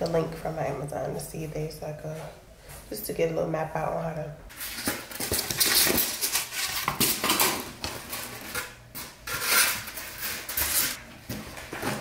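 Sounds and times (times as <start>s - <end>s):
styrofoam packing rustling: 4.5s - 12.0s.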